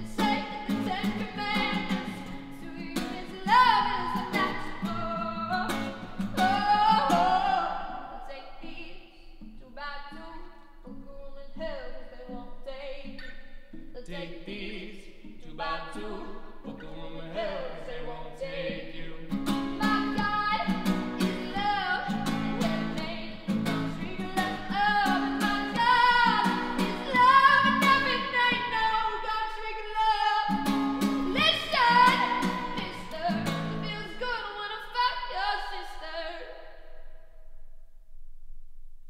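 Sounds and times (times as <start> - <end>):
strummed acoustic guitar: 0.0 - 8.0, 16.0 - 36.0
woman singing long held notes: 0.0 - 13.1.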